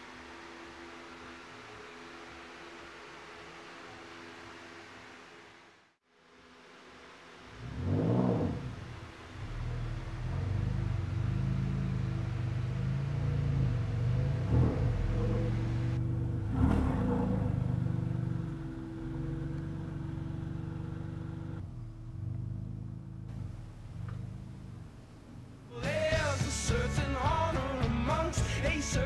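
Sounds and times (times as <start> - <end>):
low droning soundtrack: 7.2 - 28.6.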